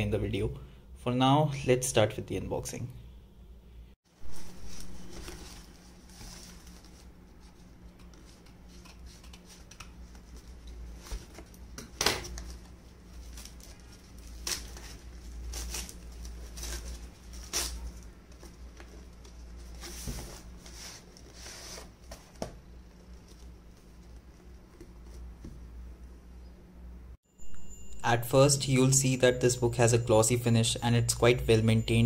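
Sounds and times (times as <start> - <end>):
cardboard and tape tearing: 13.2 - 18.1.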